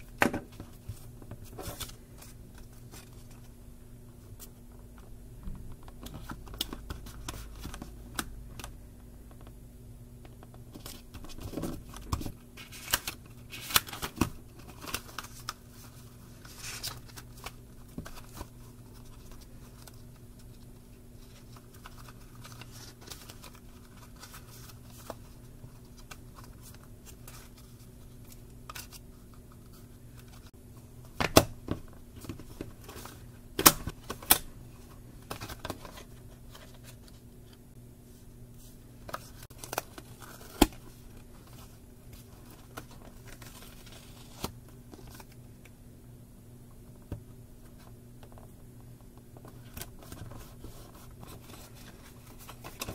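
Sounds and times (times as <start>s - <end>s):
faint hum: 0.0s - 52.9s
notebook pages rustling: 10.7s - 30.5s.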